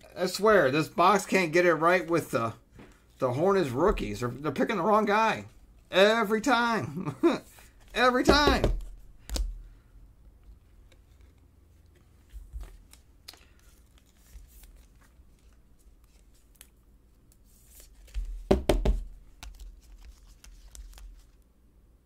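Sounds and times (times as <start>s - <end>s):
card sleeves clicking and rustling: 10.6s - 21.4s.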